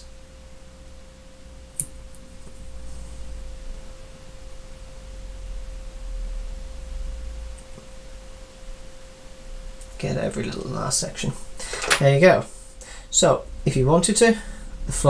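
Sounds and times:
steady hum tone: 0:00.0 - 0:15.0
low rumble: 0:13.2 - 0:15.0.

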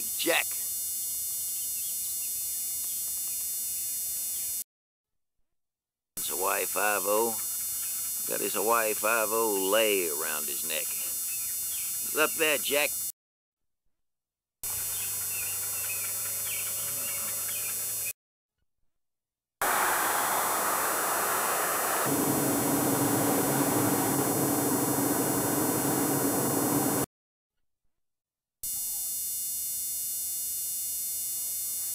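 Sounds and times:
tyre and engine rush: 0:19.6 - 0:27.1
steady electrical hum: 0:22.1 - 0:27.1
steady low drone: 0:22.1 - 0:27.1.

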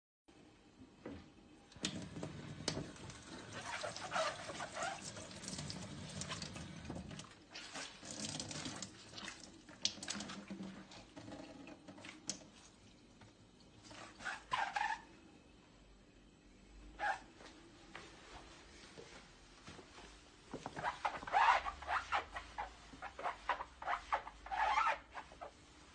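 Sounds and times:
water splashing in a metal sink: 0:01.7 - 0:13.0
water running from a tap: 0:01.8 - 0:13.0.

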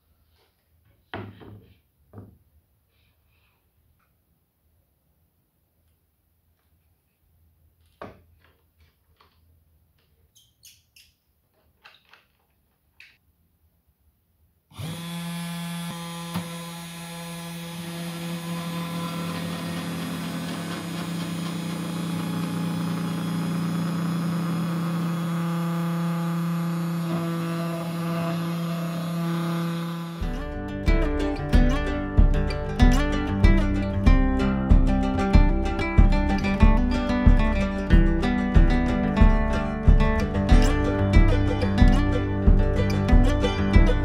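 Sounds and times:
router bit cutting plywood: 0:14.7 - 0:30.4
spindle motor hum and whine: 0:14.8 - 0:30.3.

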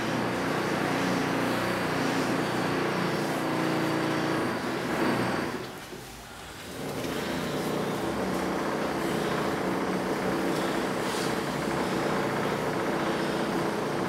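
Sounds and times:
breath noise: 0:08.8 - 0:13.8.

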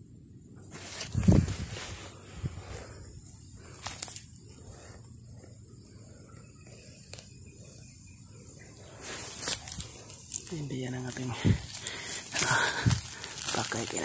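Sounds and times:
high-pitched insect drone: 0:00.0 - 0:14.0
rustling in dry leaves: 0:00.7 - 0:04.3, 0:08.8 - 0:14.0
light snaps in leaf litter: 0:03.7 - 0:04.3, 0:09.2 - 0:14.0.

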